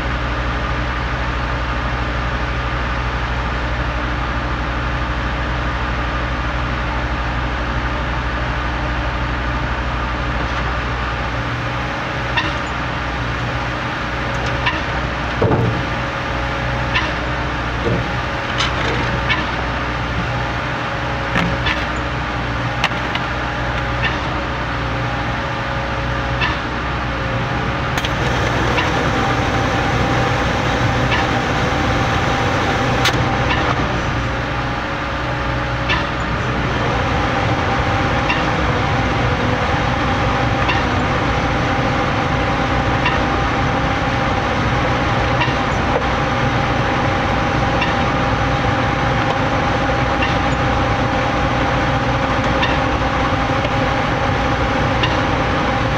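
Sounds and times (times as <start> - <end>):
concrete pump engine droning: 0.0 - 55.9.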